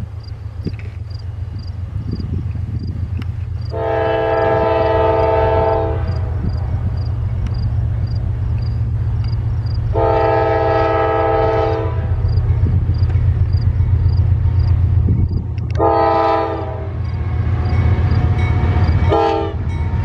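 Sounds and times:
train rumbling: 0.0s - 20.0s
locomotive air horn blasts: 3.7s - 6.5s, 9.9s - 12.3s, 15.7s - 17.0s, 19.0s - 19.7s.

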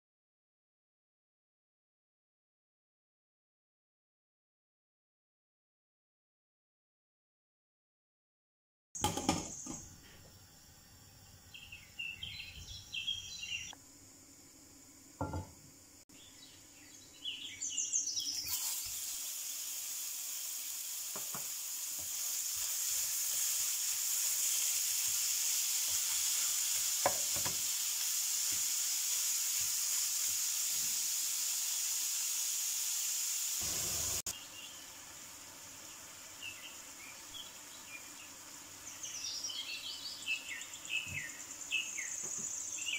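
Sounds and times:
meat sizzling in a frying pan: 18.3s - 40.2s.

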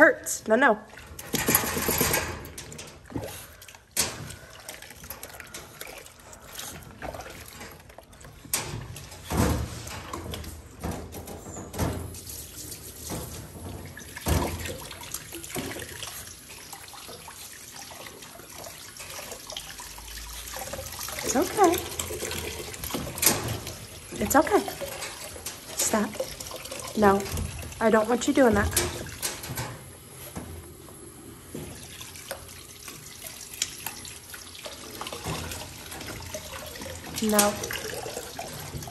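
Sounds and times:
water splashing in a tub: 0.7s - 11.1s, 11.9s - 30.1s, 31.4s - 38.9s.

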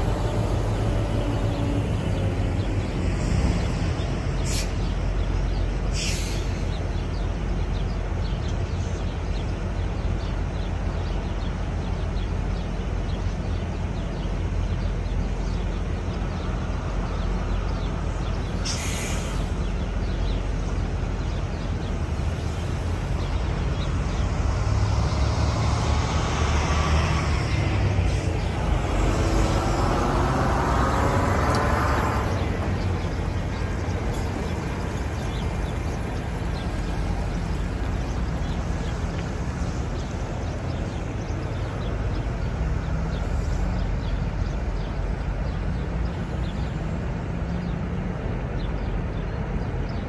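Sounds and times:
truck driving past: 0.0s - 9.8s, 13.3s - 49.1s
diesel trucks idling: 0.0s - 24.8s, 27.7s - 50.0s
brief hiss: 5.9s - 6.6s, 18.6s - 19.6s.

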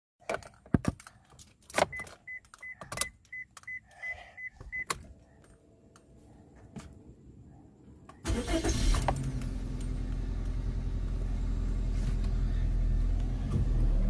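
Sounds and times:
clicks and knocks of handling: 0.2s - 3.7s
car warning chime beeping: 1.9s - 5.0s.

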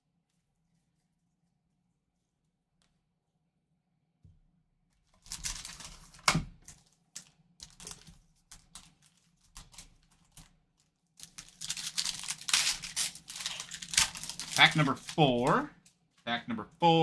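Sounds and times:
wrapper crinkling: 5.2s - 16.3s.

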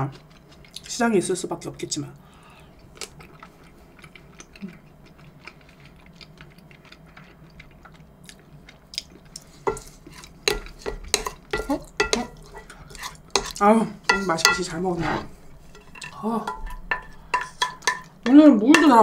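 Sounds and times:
cutlery clinking on dishes: 10.5s - 12.7s, 15.8s - 19.0s.

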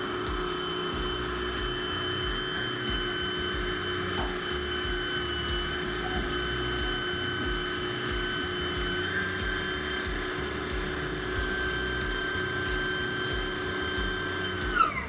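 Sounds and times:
electric pressure washer running: 0.0s - 15.0s.

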